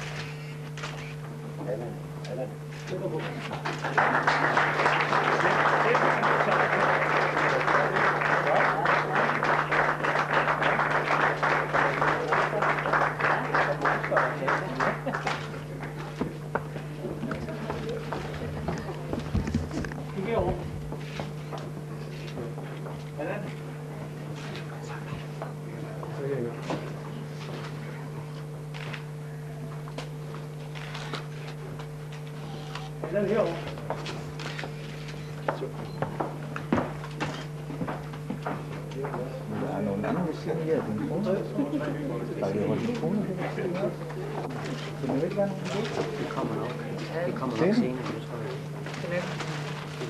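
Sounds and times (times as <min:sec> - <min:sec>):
low electrical hum: 0:00.0 - 0:50.0
audience applauding: 0:03.4 - 0:16.4.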